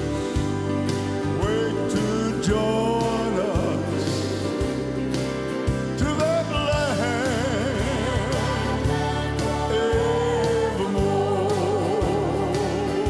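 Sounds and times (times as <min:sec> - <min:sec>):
piano: 0:00.0 - 0:13.0
man singing gospel song: 0:01.2 - 0:05.0, 0:05.8 - 0:13.0.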